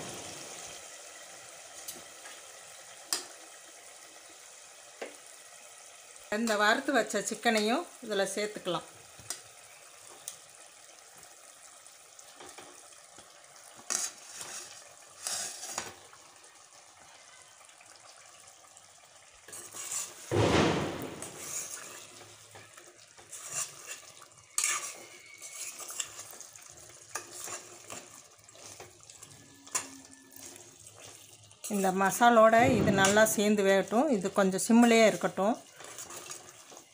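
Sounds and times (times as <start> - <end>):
low sizzle: 0.0 - 36.9
spoon scraping pan: 13.7 - 16.0, 19.5 - 20.3, 21.0 - 33.6, 34.8 - 36.9.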